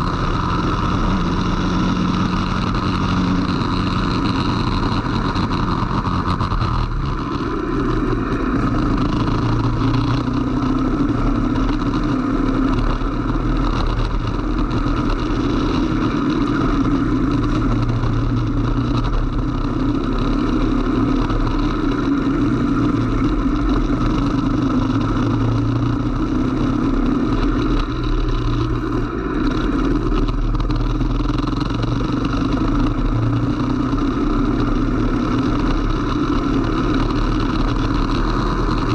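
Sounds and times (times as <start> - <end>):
racing kart engine: 0.0 - 38.9.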